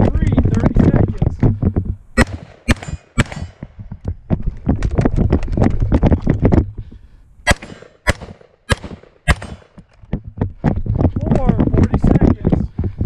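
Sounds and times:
carbine gunshots: 0:02.2 - 0:03.7, 0:07.4 - 0:09.8.

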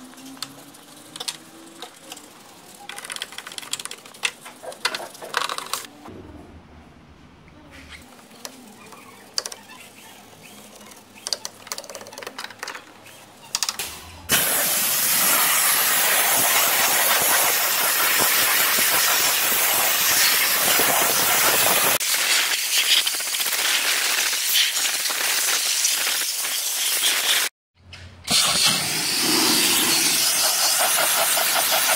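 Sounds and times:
steam cleaner hissing: 0:14.3 - 0:27.5, 0:28.3 - 0:31.9
brush scrubbing: 0:29.2 - 0:31.9.

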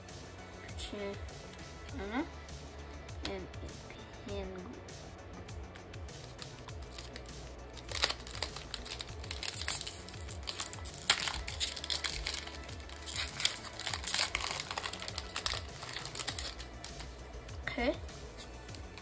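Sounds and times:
quiet background music: 0:00.0 - 0:19.0
foil wrapper crinkling: 0:06.2 - 0:17.1.

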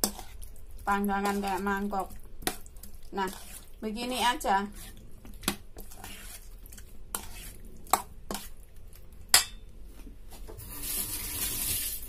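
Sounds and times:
metal spoon clinking on steel bowl: 0:09.3 - 0:09.6.

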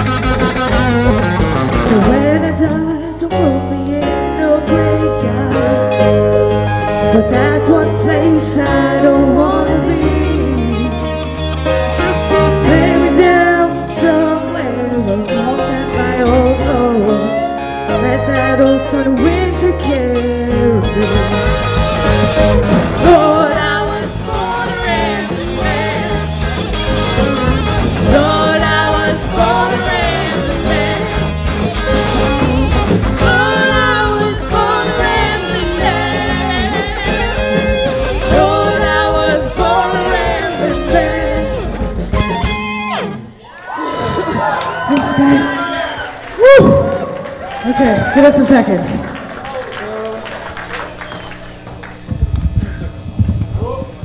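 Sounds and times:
drums: 0:00.0 - 0:54.0
guitar: 0:00.0 - 0:54.0
woman singing: 0:01.9 - 0:06.1, 0:07.0 - 0:11.1, 0:12.6 - 0:21.5, 0:23.0 - 0:26.3, 0:28.1 - 0:31.3, 0:33.2 - 0:37.5, 0:38.3 - 0:41.7.

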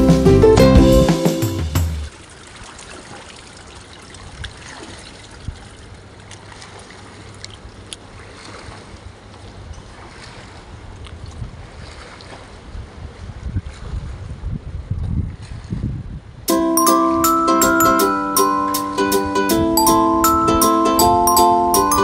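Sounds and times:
background music: 0:00.0 - 0:02.1, 0:16.5 - 0:22.0
faint water splashes: 0:02.0 - 0:15.8
pool water trickling and sloshing: 0:02.0 - 0:18.9.

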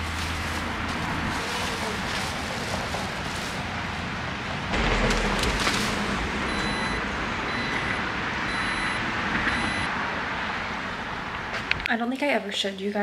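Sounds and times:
steady outdoor hiss: 0:00.0 - 0:12.6
brief low rumble: 0:04.7 - 0:09.0
liftgate warning beeps: 0:06.5 - 0:09.9.

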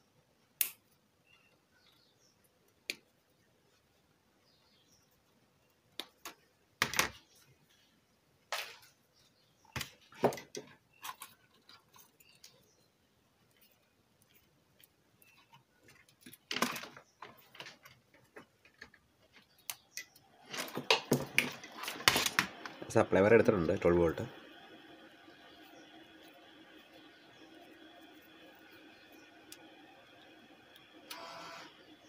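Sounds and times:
wires rustling: 0:07.2 - 0:32.0.

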